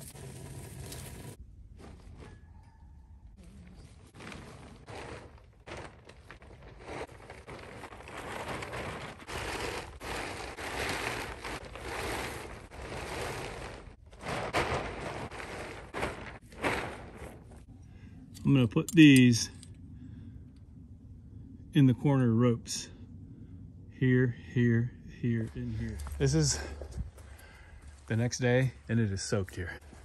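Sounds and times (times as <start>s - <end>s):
tarp crackling and rustling: 0.0s - 2.3s, 3.7s - 17.7s.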